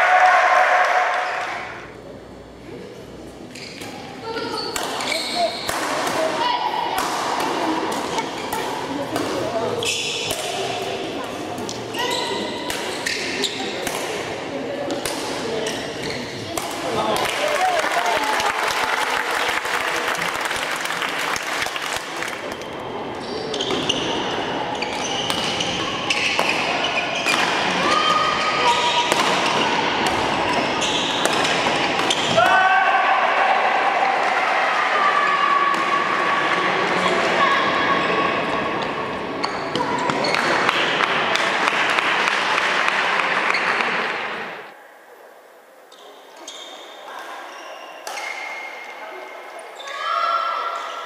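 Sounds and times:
play on neighbouring courts: 0.0s - 19.0s, 21.4s - 44.8s
shoes squeaking on court floor: 3.4s - 5.8s, 11.7s - 13.8s, 15.6s - 16.5s, 22.6s - 29.6s, 30.3s - 32.4s, 45.9s - 48.8s
spectators applauding: 17.2s - 22.4s
racket striking shuttlecock: 29.1s - 30.4s, 31.2s - 32.4s.

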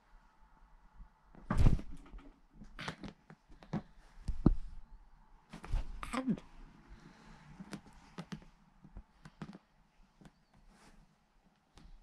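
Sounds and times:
rustling scuffs on fabric: 5.5s - 6.0s, 10.0s - 12.0s.

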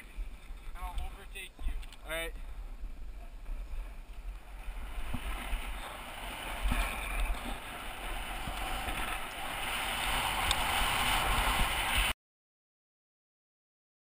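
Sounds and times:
wind on microphone: 0.0s - 12.1s
sliding over snow: 3.0s - 12.1s.

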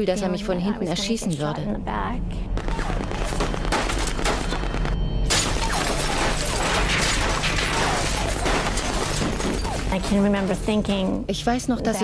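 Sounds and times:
low droning music: 0.0s - 12.0s
gunfire sound effects: 2.6s - 9.9s
crashing and shattering: 5.3s - 10.0s.

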